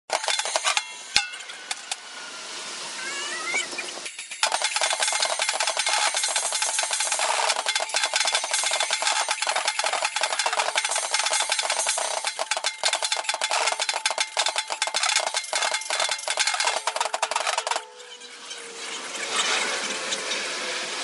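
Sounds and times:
sped-up drum kit and cymbals: 0:01.8 - 0:17.9.

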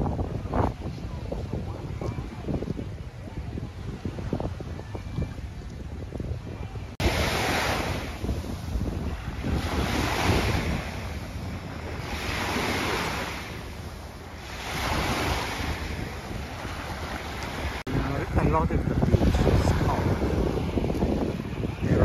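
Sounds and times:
wind rumble on microphone: 0:00.0 - 0:22.0
small waves breaking on sand: 0:06.4 - 0:22.0.

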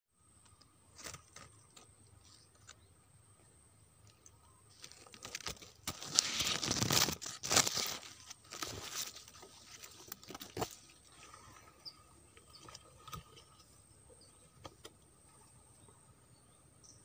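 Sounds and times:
leaves and branches rustling: 0:00.4 - 0:02.9, 0:04.0 - 0:15.9
branches snapping: 0:00.9 - 0:02.8, 0:04.2 - 0:11.0.

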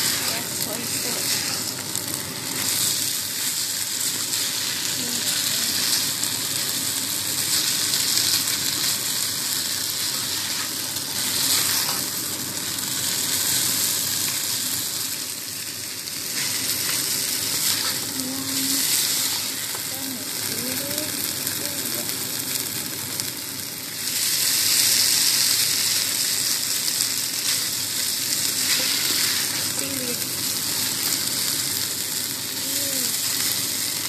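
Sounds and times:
spatula stirring: 0:00.0 - 0:01.8, 0:28.4 - 0:29.9
rice sizzling in a pot: 0:00.0 - 0:34.0.

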